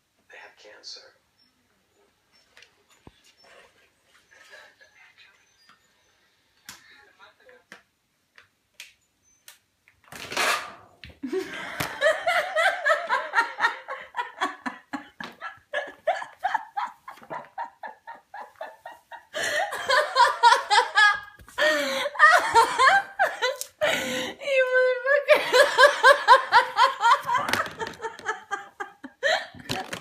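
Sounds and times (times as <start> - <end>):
person laughing hard: 11.2 - 24.4, 25.3 - 30.0.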